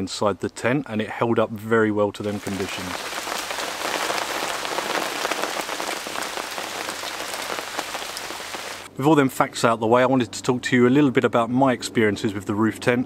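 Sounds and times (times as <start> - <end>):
steady rain falling: 2.2 - 8.9.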